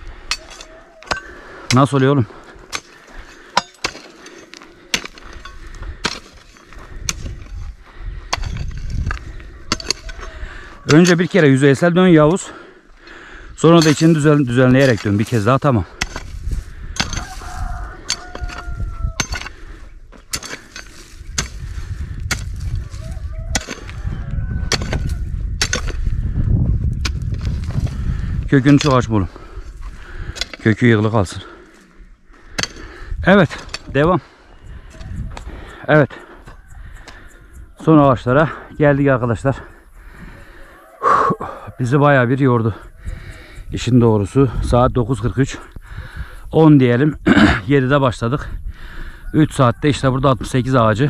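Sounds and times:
digging tool striking soil: 0.2 - 2.0, 2.7 - 11.6, 13.6 - 24.0, 24.7 - 26.1, 27.0 - 27.9, 28.6 - 29.3, 30.2 - 31.2, 32.5 - 34.0.

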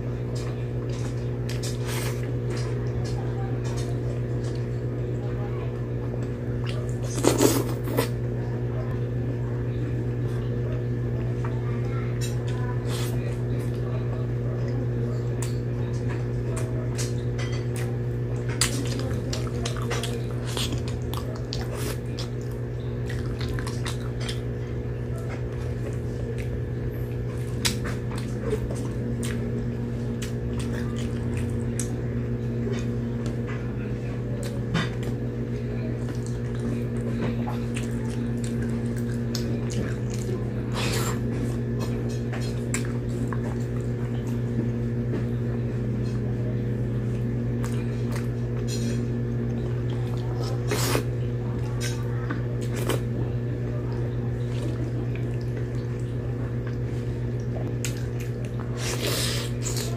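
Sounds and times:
steady low hum: 0.0 - 59.9
chewing and sucking food: 49.5 - 53.2, 54.4 - 59.9.

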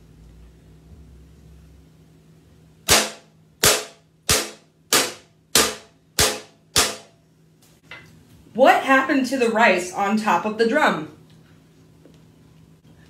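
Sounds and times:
wooden spoon striking metal sheet: 2.9 - 7.2.

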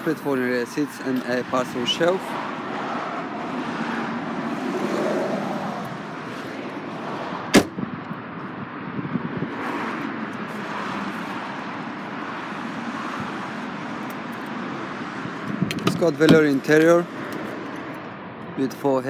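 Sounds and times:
car tailgate slamming shut: 7.5 - 7.8.

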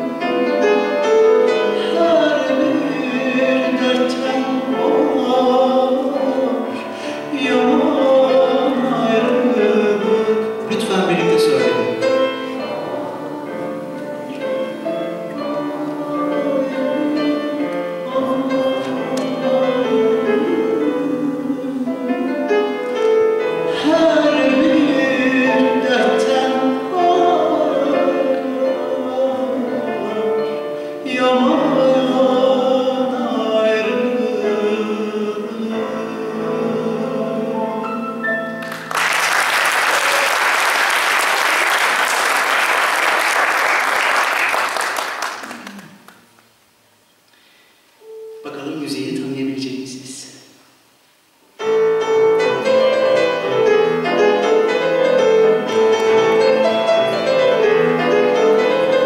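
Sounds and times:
man singing classical style: 0.0 - 38.7, 51.6 - 59.0
grand piano accompaniment: 0.0 - 46.6, 48.0 - 50.3, 51.4 - 59.0
audience applause: 38.6 - 46.4.

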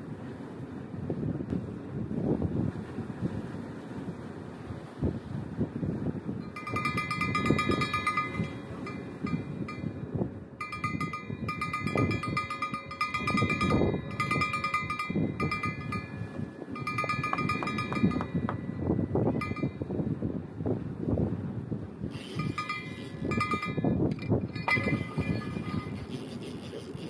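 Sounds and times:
gusty wind: 0.0 - 27.0
small bell jingling: 6.5 - 9.9, 10.6 - 19.8, 22.1 - 27.0.

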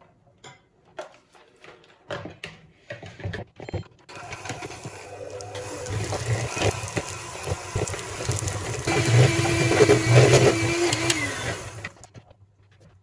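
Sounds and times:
electric hand mixer running: 4.1 - 12.0.

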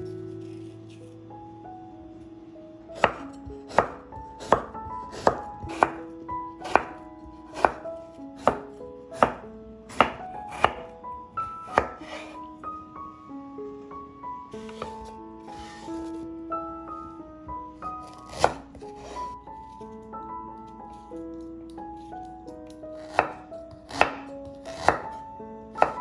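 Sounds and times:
knife chopping on wooden board: 3.0 - 6.0, 6.6 - 7.8, 8.4 - 8.6, 9.2 - 10.9, 11.7 - 12.3, 18.0 - 19.2, 23.0 - 25.2, 25.8 - 26.0.

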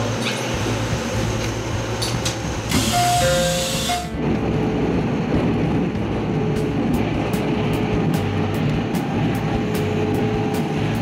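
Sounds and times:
train rumble: 0.0 - 11.0
loud air hiss: 2.7 - 4.2.

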